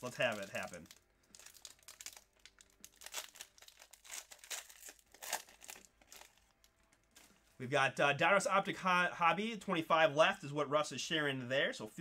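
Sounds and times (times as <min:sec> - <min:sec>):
foil wrapper tearing and crinkling: 0:00.0 - 0:07.3.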